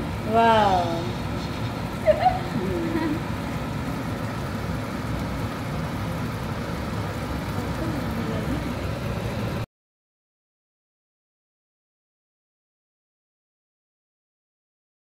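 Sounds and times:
low kitchen rumble: 0.0 - 9.7.

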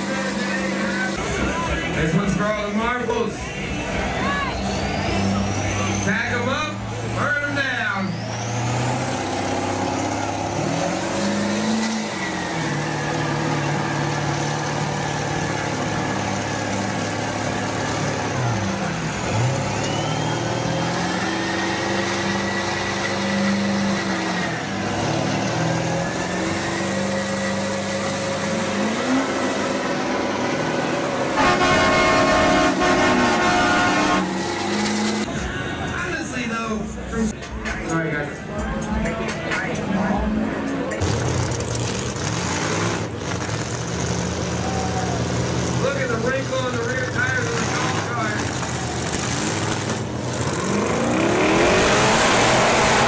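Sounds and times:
truck engines revving: 0.0 - 53.0
loud horn blast: 31.3 - 35.2.

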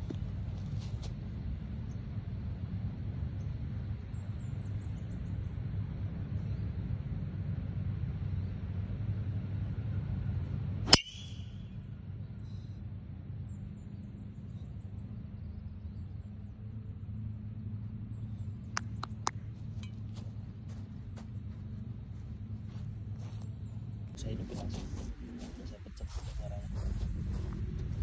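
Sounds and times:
golf club striking ball: 10.8 - 11.5
low rumble: 15.0 - 28.0.

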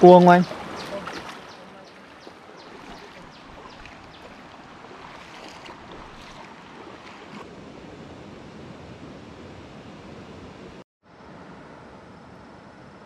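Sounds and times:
stream water flowing over rocks: 0.0 - 7.5.

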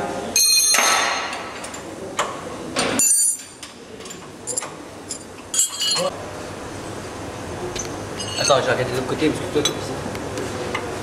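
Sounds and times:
metal tools clinking: 3.0 - 6.1, 8.2 - 8.7.

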